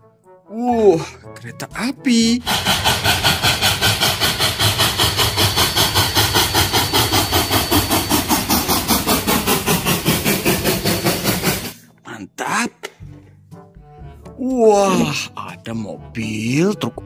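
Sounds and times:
steam locomotive chuffing: 2.4s - 11.8s.

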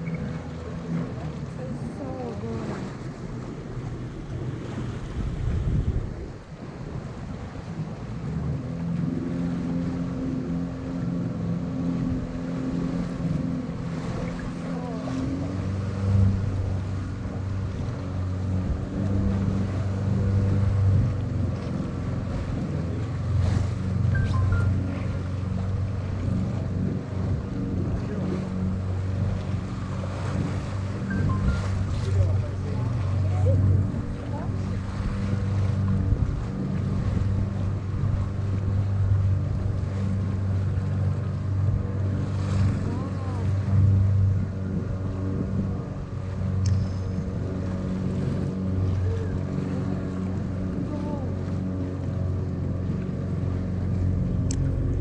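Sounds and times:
boat motor humming: 0.0s - 55.0s
water washing past hull: 0.0s - 55.0s.

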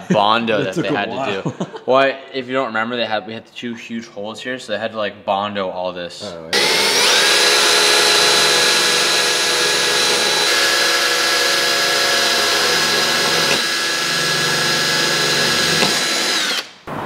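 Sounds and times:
cordless drill whining: 6.6s - 16.8s.

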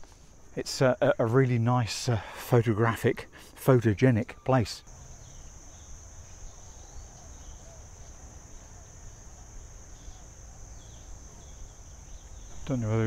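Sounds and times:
faint chirps: 0.0s - 13.0s
high-pitched insect drone: 4.8s - 13.0s.

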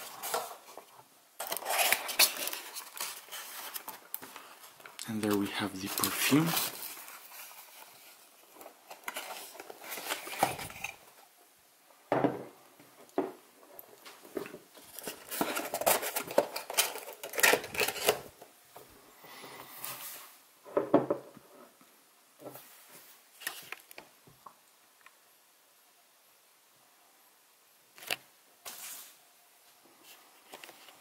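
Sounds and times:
cardboard and plastic rustling: 0.0s - 11.2s, 14.0s - 18.5s, 30.0s - 31.0s.

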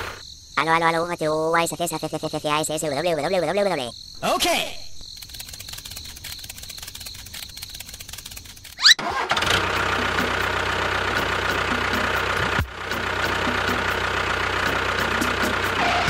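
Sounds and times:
engine starting and idling: 5.4s - 16.0s.

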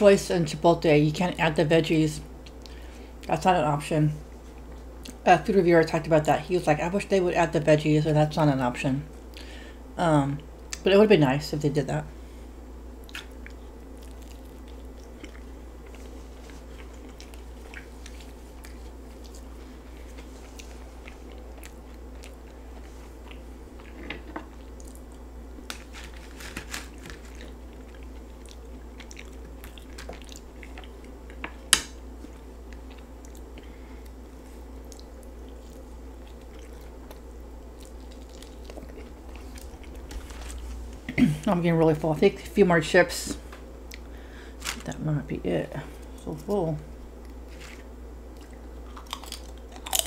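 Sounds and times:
low hum: 11.6s - 50.0s
close chewing and biting: 13.0s - 31.4s, 34.8s - 40.6s, 47.2s - 50.0s
chips crunching: 13.1s - 33.4s, 34.9s - 40.9s, 47.2s - 50.0s.

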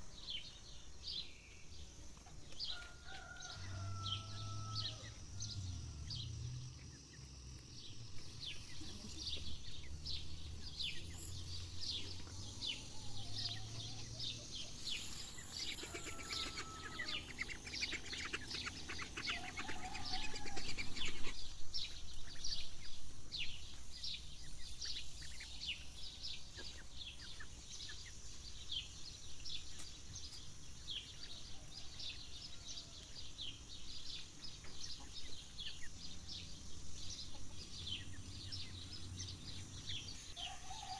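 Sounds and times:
high bird chirps: 8.4s - 21.4s.

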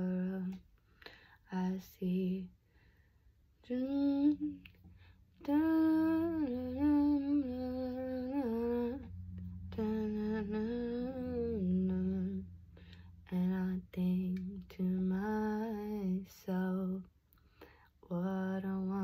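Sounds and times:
woman humming a slow tune: 5.4s - 12.6s.

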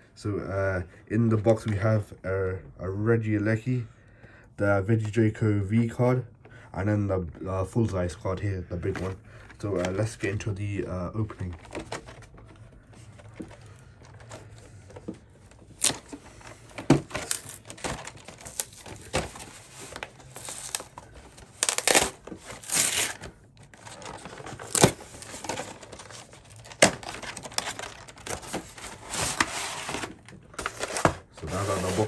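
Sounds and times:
cardboard rustling and tearing: 11.2s - 32.0s.

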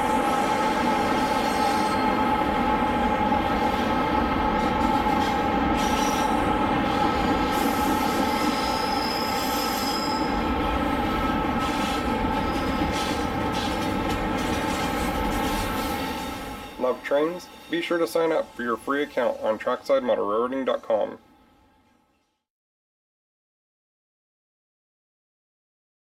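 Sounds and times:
model train whine: 0.0s - 22.3s
wheels rumbling on track: 10.2s - 17.2s.

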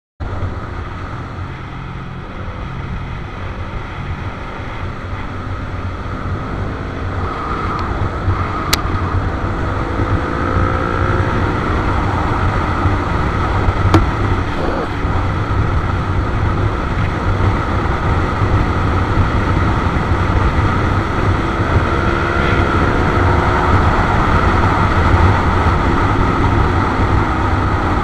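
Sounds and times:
wind noise on microphone: 0.2s - 28.0s
motorcycle engine running: 8.1s - 28.0s.

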